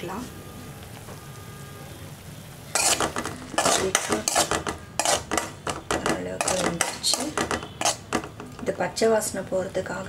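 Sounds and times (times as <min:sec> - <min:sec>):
metal spoon scraping steel pan: 0:02.8 - 0:08.4.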